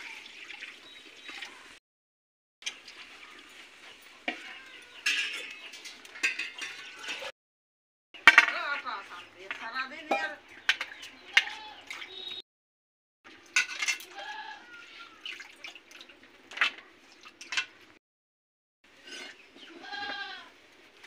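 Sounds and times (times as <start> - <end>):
metal pots and plates clinking: 4.2 - 7.3, 8.2 - 11.6, 13.4 - 14.2, 17.4 - 17.8.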